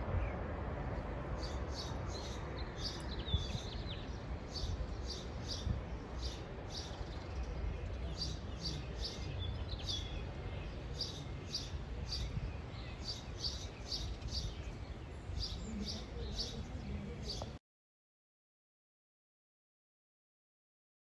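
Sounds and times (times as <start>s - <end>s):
songbird chirping: 1.4s - 17.6s.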